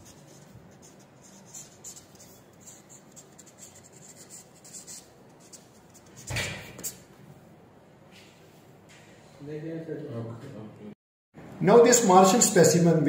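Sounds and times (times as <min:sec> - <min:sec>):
marker pen writing on paper: 0:00.0 - 0:07.1.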